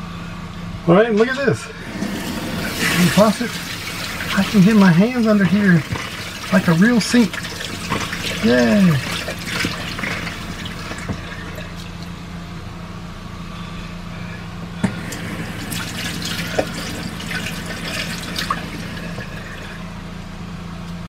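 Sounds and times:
steady low hum: 0.0s - 21.0s
faucet water running into sink: 1.8s - 12.0s, 14.8s - 19.9s.

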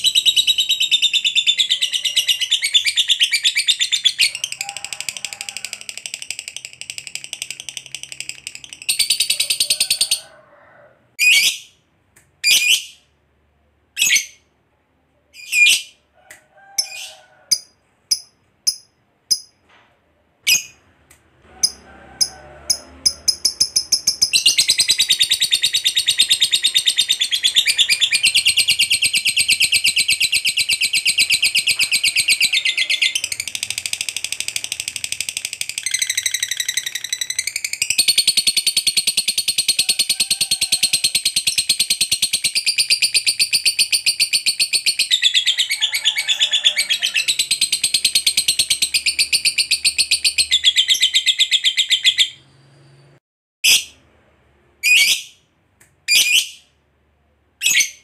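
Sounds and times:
lovebird sharp chirps: 56.1s - 56.7s.

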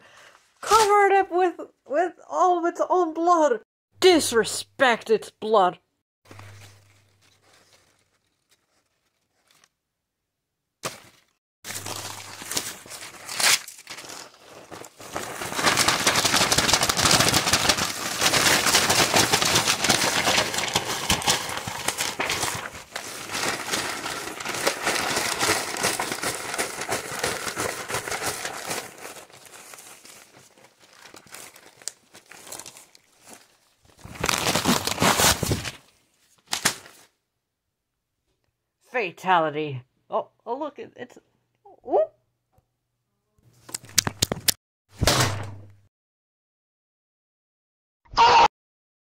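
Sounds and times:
paper tearing and crumpling: 6.3s - 9.8s, 10.8s - 37.1s.

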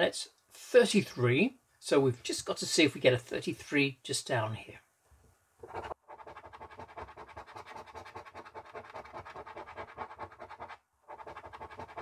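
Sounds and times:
coin scratching a scratchcard: 5.6s - 12.0s.

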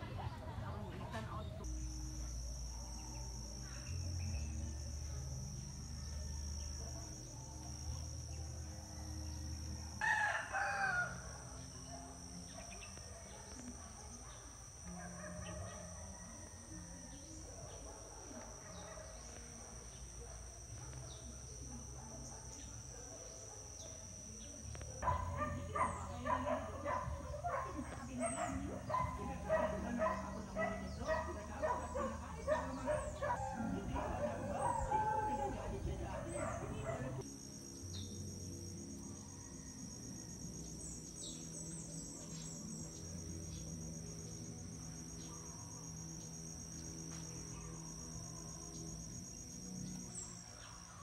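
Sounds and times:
high-pitched insect drone: 0.0s - 51.0s
rooster crowing: 8.7s - 12.2s, 14.8s - 17.5s
dog barking: 11.9s - 37.2s.

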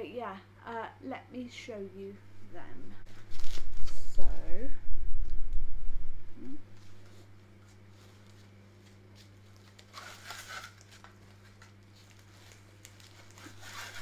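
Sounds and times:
low electrical hum: 0.0s - 14.0s
fabric bag rustling: 3.1s - 4.2s, 6.8s - 14.0s.

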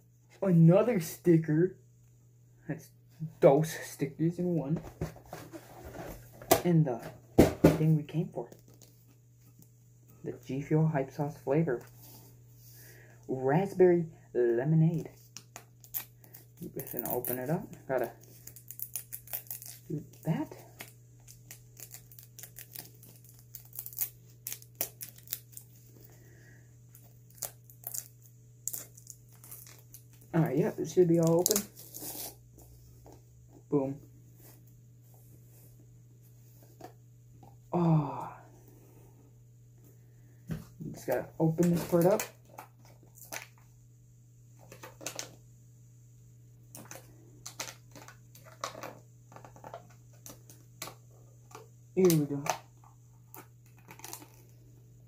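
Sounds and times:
faint low hum: 0.0s - 55.0s
plastic wrap crinkling and tearing: 15.8s - 25.9s, 27.0s - 32.3s, 41.5s - 43.6s, 53.3s - 54.6s.

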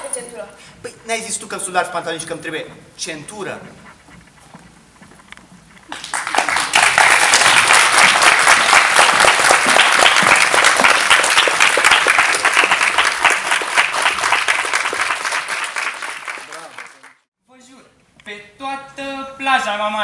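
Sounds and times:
audience applauding: 5.9s - 17.3s.

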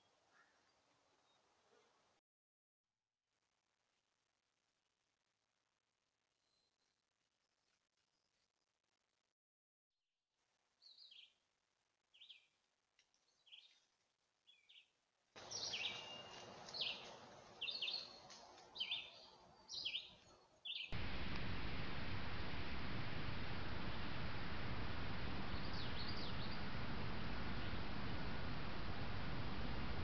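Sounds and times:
microphone hiss: 20.9s - 30.0s
loud steady hiss: 21.0s - 30.0s.

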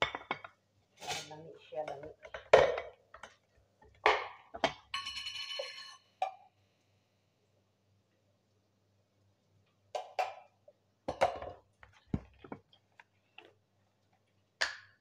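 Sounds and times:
metal spoon clinking on tin: 4.9s - 6.1s.

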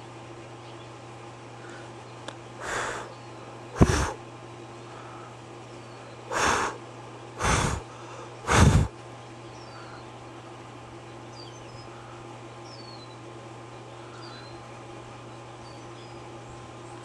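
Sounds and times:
steady low hum: 0.0s - 17.0s
air puffs on microphone: 3.8s - 4.2s, 8.5s - 9.0s.

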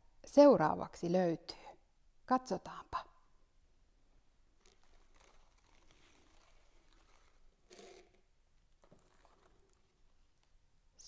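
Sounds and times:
sack and paper rustling: 4.6s - 8.0s.

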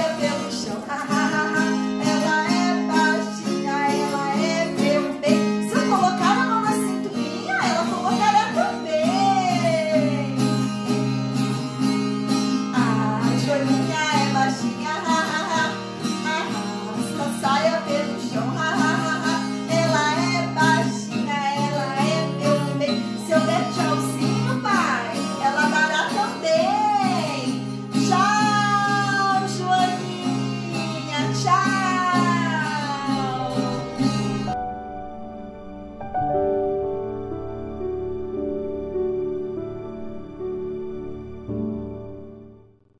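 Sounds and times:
woman singing children's song: 0.0s - 10.7s, 12.6s - 34.5s
strummed acoustic guitar: 0.0s - 36.0s.

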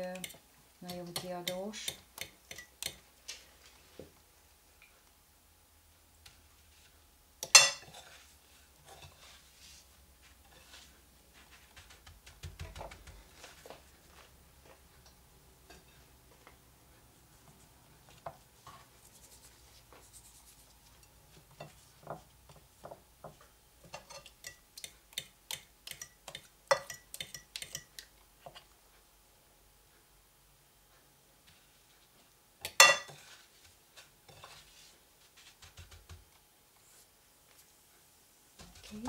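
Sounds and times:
rubbing and taps on plate: 10.6s - 13.8s, 32.6s - 36.4s
fork clinking against bowl: 25.9s - 27.9s.

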